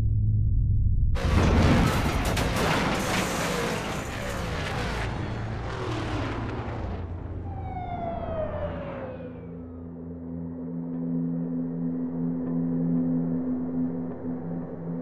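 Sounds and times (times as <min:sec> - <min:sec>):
race cars passing at speed: 0:03.6 - 0:09.7.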